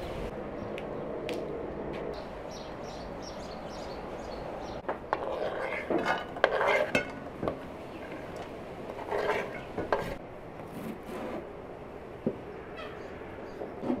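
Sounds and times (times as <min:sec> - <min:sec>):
knife scraping wooden board: 0:05.1 - 0:07.1, 0:08.9 - 0:11.4.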